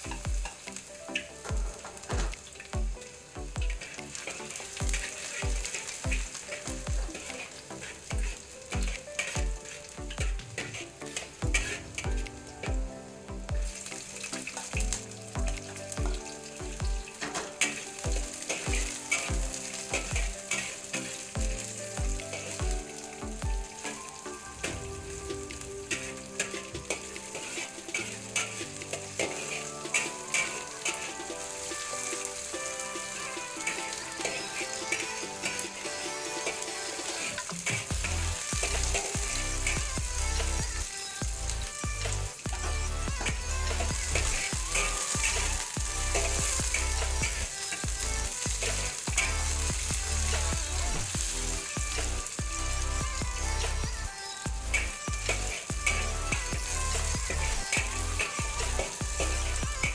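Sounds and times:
background music with a beat: 0.0s - 59.9s
onions sizzling in a wok: 0.0s - 59.9s
metal spatula scraping a pan: 25.9s - 39.8s.

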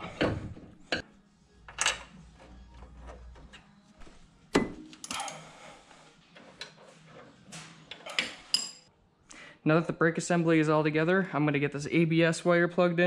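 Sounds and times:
metal tools clicking and knocking: 4.9s - 5.4s.

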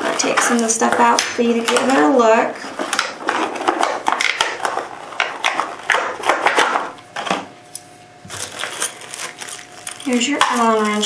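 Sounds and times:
plastic packaging crackling: 8.2s - 11.0s.

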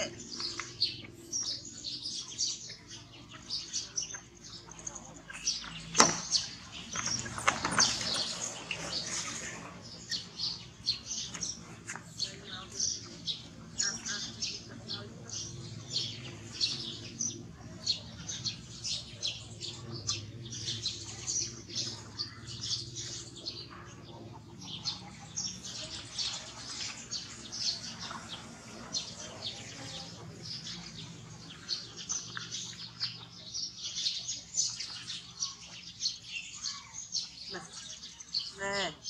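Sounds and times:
small birds chirping: 0.0s - 39.0s.

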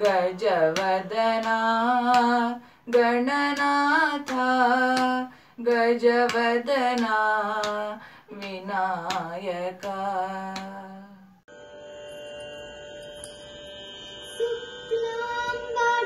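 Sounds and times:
boy singing devotional song: 0.0s - 11.3s, 14.4s - 16.0s.

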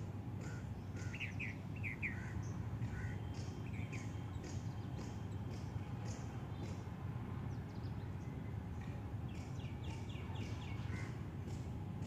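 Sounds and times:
birds chirping: 0.3s - 11.6s.

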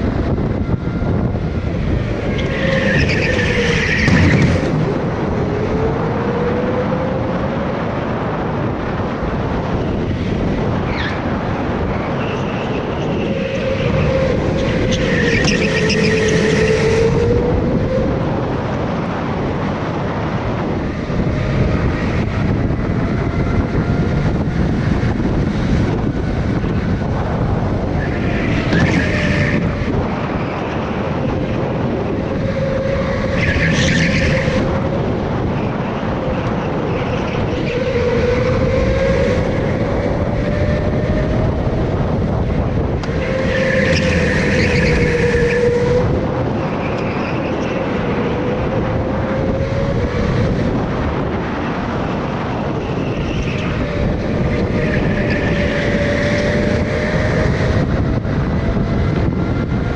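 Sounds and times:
go-kart motor drone: 0.0s - 59.9s
tyre squeals: 2.1s - 4.8s, 11.9s - 17.3s, 27.9s - 30.7s, 32.3s - 34.7s, 43.0s - 48.8s, 52.7s - 57.4s.

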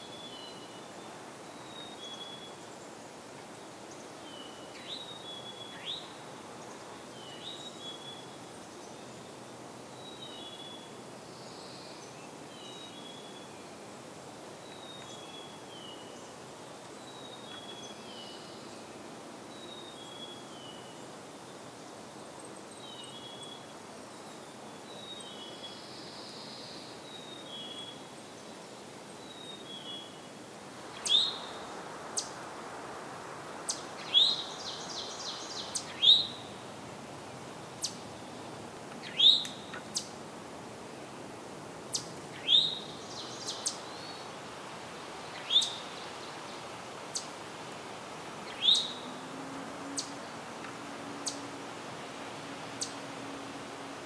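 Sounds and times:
bird rising call note: 48.4s - 53.9s.

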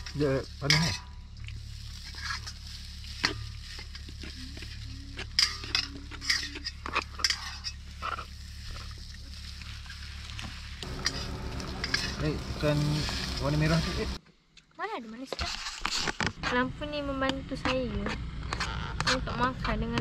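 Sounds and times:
steady low hum: 0.0s - 14.5s
spoons scraping plates and pot: 5.2s - 8.8s, 10.8s - 13.8s.

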